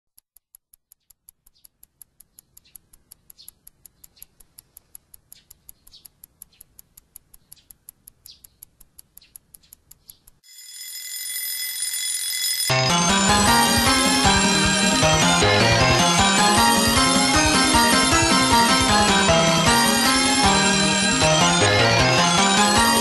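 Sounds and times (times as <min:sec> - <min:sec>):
clock ticking quickly: 0:00.2 - 0:10.5, 0:12.8 - 0:23.0
alarm clock ringing: 0:10.4 - 0:23.0.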